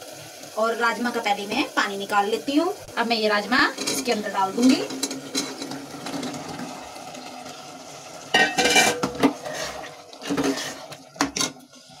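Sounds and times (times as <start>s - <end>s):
metal spoon scraping a pot: 3.7s - 6.4s, 8.4s - 11.6s.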